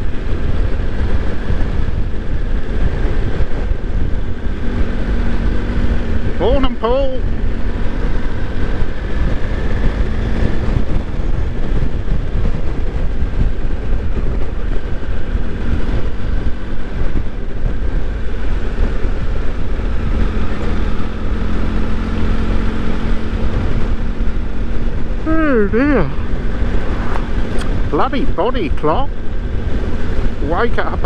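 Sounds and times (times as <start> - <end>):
motorcycle engine hum: 0.0 - 31.0
road noise: 0.0 - 31.0
wind buffeting microphone: 0.0 - 31.0.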